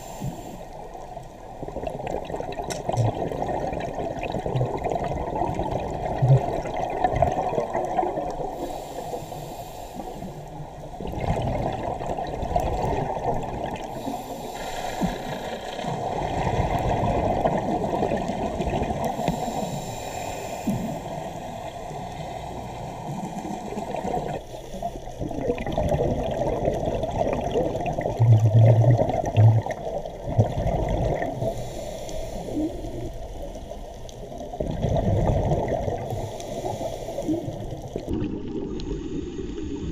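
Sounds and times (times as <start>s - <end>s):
underwater regulator breathing: 0.0s - 0.9s, 8.3s - 10.6s, 13.8s - 15.9s, 19.0s - 25.1s, 31.3s - 34.2s, 36.0s - 38.1s
bubbles exhaled underwater: 0.2s - 8.8s, 10.2s - 19.8s, 20.7s - 31.8s, 32.4s - 39.9s.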